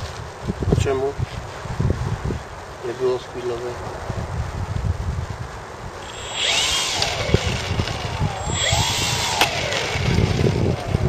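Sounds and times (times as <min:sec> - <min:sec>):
wind rumble on microphone: 0:00.0 - 0:11.0
model airplane motor revving: 0:06.0 - 0:11.0.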